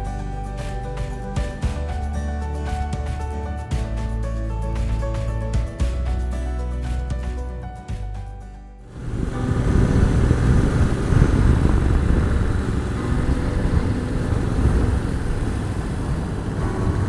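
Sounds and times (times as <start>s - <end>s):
motorcycle engine running: 8.9s - 17.0s
wind and road noise: 8.9s - 17.0s.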